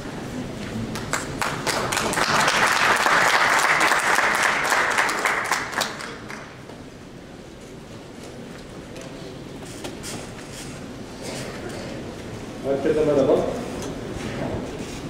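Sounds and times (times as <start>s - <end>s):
audience applauding: 0.9s - 6.7s.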